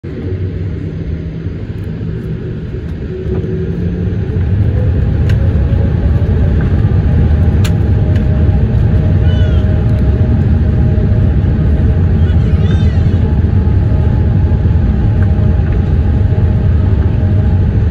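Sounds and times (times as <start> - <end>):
jet engines rumbling: 0.0 - 17.9.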